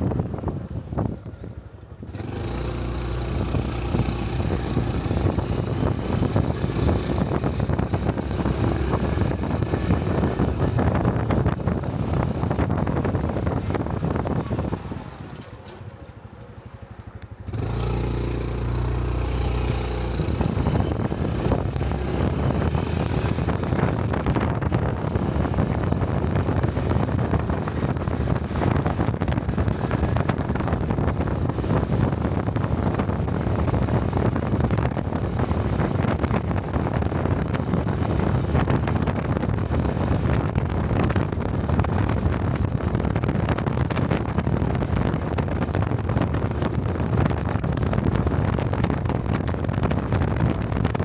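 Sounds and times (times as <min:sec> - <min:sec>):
wind rushing over microphone: 0:00.0 - 0:16.4, 0:17.1 - 0:51.0
motorcycle engine running: 0:00.0 - 0:51.0.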